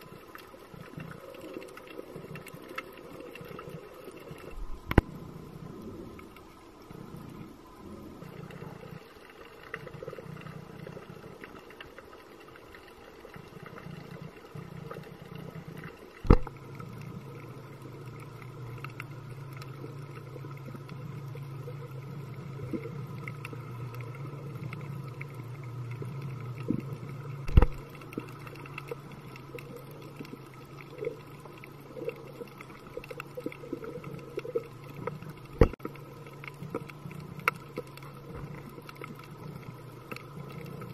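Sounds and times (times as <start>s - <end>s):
small bubbling: 0.0s - 40.9s
steady low underwater hum: 0.0s - 40.9s.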